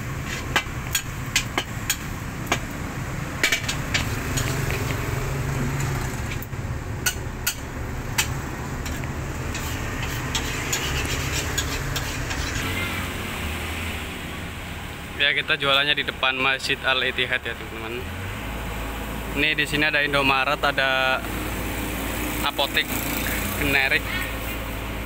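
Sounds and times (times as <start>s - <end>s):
metal spatula clanking on wok: 7.0s - 11.0s.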